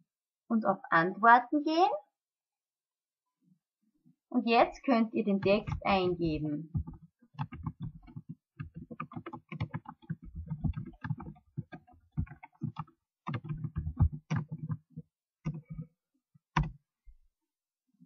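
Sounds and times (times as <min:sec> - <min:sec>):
typing on computer keyboard: 0:05.4 - 0:15.9, 0:16.6 - 0:16.8.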